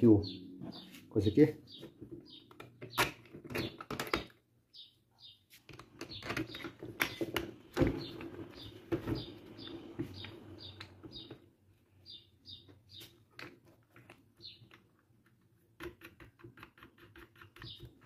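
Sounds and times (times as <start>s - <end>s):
bird chirping: 0.0s - 3.8s, 4.7s - 13.4s, 14.4s - 14.9s, 17.2s - 18.0s
clicks and knocks of fan parts: 1.8s - 4.4s, 5.6s - 9.3s.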